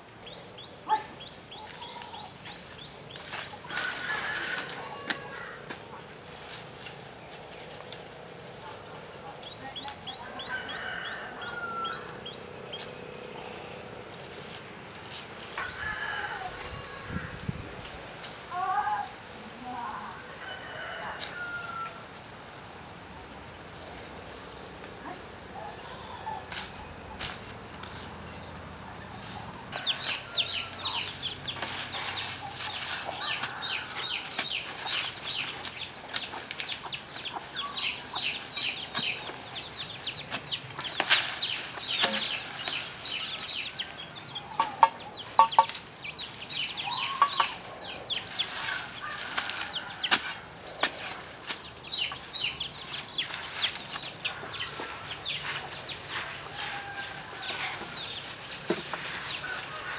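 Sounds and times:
birds chirping: 0.0s - 17.4s, 22.8s - 59.9s
digging tool striking ground: 40.3s - 42.4s.

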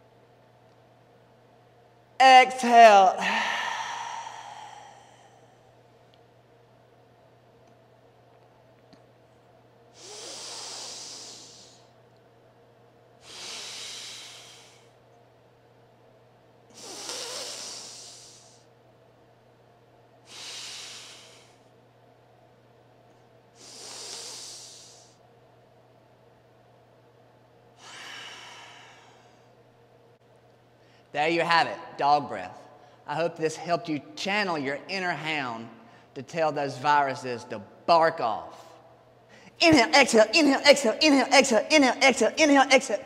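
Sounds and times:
man breathing deeply: 3.2s - 5.8s, 9.9s - 11.9s, 13.2s - 15.0s, 16.7s - 18.7s, 20.2s - 21.7s, 23.6s - 25.2s, 27.8s - 29.6s.

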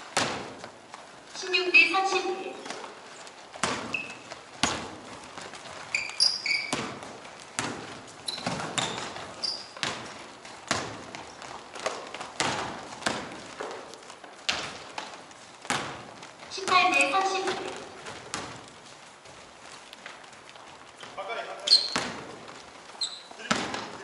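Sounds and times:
sneaker squeaks: 1.4s - 15.0s, 15.6s - 18.6s, 19.2s - 24.0s
basketball bouncing on court: 1.6s - 18.9s, 20.5s - 24.0s.

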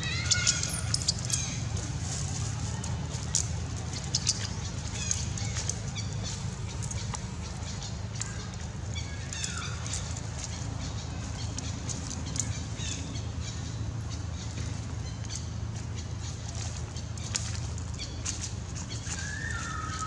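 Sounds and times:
high-pitched chirping calls: 0.0s - 1.8s, 3.1s - 20.0s
steady low hum: 0.0s - 20.0s.

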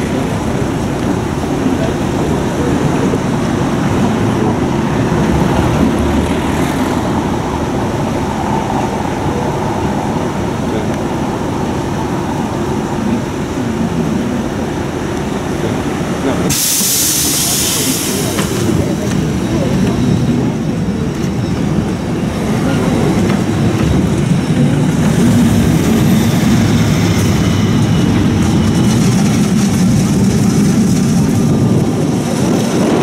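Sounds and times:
tram rumbling on rails: 0.0s - 33.0s
loud hiss: 16.5s - 18.9s.

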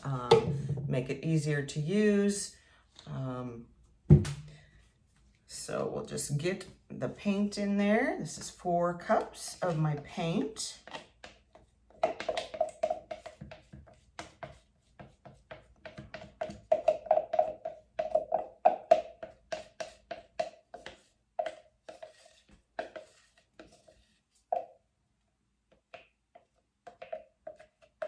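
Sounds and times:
stir stick scraping cup: 8.3s - 24.8s.

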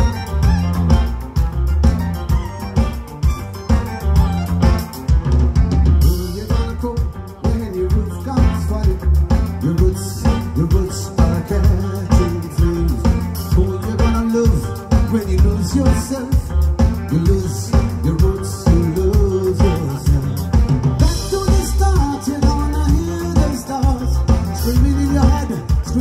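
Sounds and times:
bass guitar: 0.0s - 26.0s
drum kit beat: 0.0s - 26.0s
electric guitar: 0.0s - 26.0s
keyboard: 0.0s - 26.0s
man singing: 6.0s - 26.0s.

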